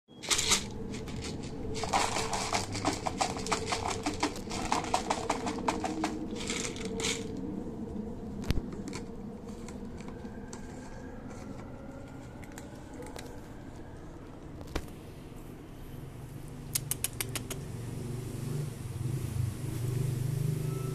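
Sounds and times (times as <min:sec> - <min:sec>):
cat crunching kibble: 0:00.2 - 0:07.4
kibble rattling into plastic bowl: 0:00.2 - 0:07.4.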